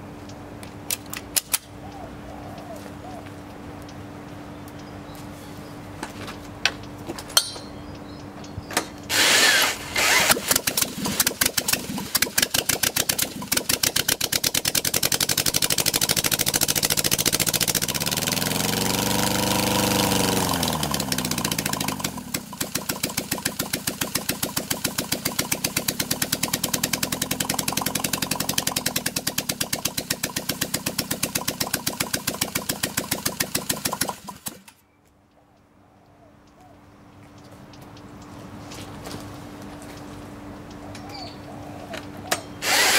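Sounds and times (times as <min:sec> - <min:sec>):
car engine running and revving: 0:14.6 - 0:22.5.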